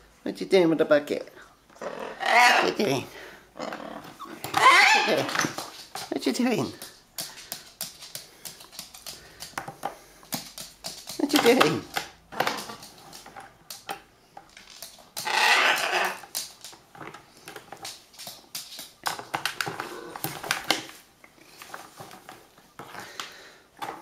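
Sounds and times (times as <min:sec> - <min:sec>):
parrot calling: 0:01.7 - 0:03.0, 0:03.6 - 0:05.5, 0:15.2 - 0:16.3.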